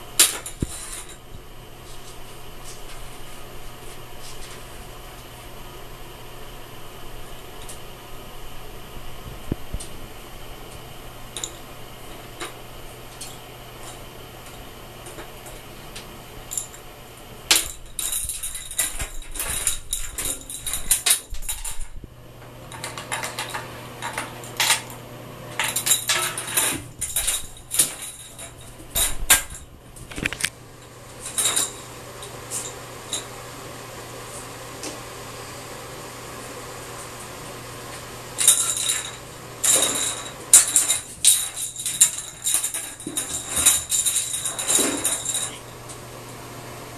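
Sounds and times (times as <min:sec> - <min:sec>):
steady low hum: 0:00.0 - 0:46.9
toy clattering in bathtub: 0:38.4 - 0:45.7.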